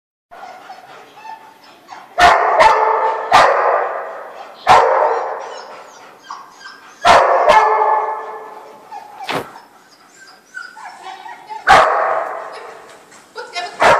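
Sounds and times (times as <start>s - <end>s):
dog barking in echoing hall: 2.2s - 5.7s, 7.0s - 8.6s, 11.6s - 12.7s.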